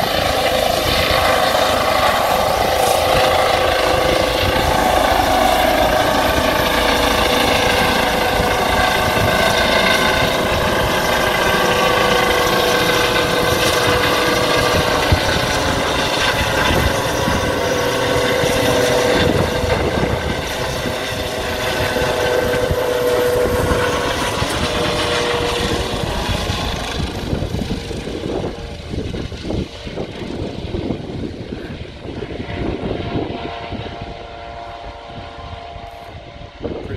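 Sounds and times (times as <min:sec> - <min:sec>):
helicopter rotor noise: 0:00.0 - 0:36.9
helicopter turbine whine: 0:00.0 - 0:36.9.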